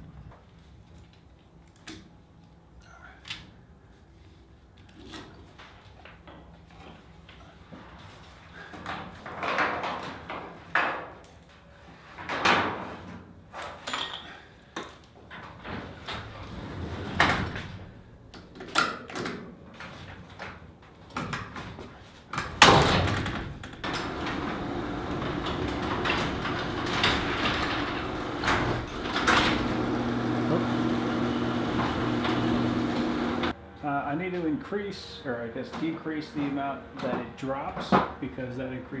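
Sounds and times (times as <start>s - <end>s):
garage door opener humming: 22.7s - 33.8s.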